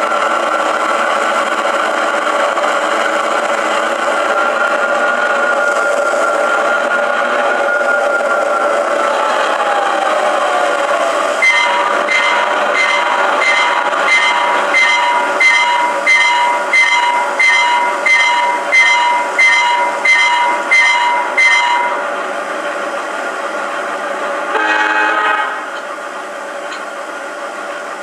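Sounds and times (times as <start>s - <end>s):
diesel locomotive engine running: 0.0s - 28.0s
locomotive horn: 11.4s - 22.0s, 24.5s - 25.8s
locomotive bell ringing: 11.6s - 22.0s.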